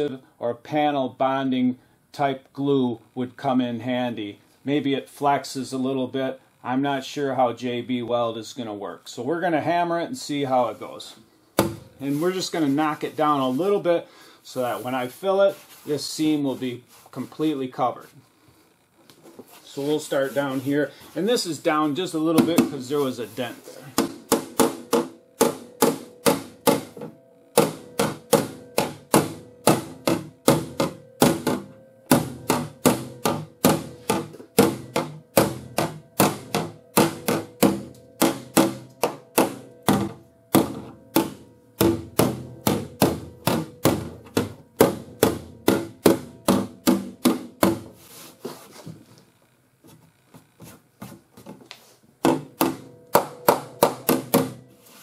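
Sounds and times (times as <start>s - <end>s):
body hammer tapping sheet steel: 11.6s - 12.0s, 23.8s - 48.0s, 52.2s - 54.8s.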